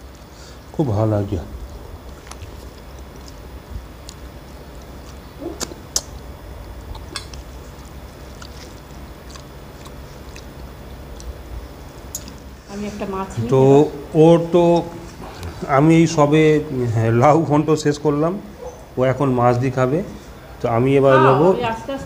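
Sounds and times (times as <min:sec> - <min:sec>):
low steady hum: 0:00.0 - 0:22.0
chewing: 0:01.8 - 0:12.6
fingers mixing rice on plates: 0:02.0 - 0:12.5.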